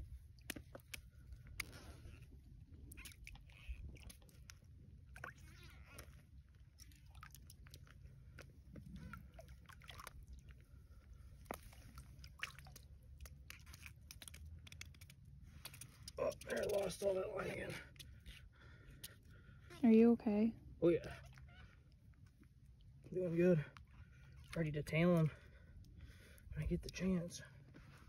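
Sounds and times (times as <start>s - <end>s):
wet sloshing: 0.0s - 19.6s, 21.0s - 27.0s
small clicks and crackles: 0.4s - 2.3s, 2.9s - 9.0s, 11.4s - 17.2s.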